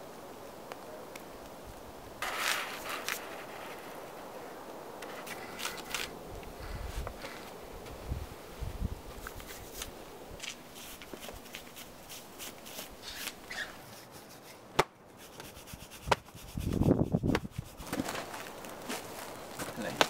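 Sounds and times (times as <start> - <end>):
rustling and scraping on rock: 2.2 - 4.3, 5.0 - 8.0, 9.1 - 20.0
rough scuffle on rock: 5.0 - 6.1, 9.2 - 20.0.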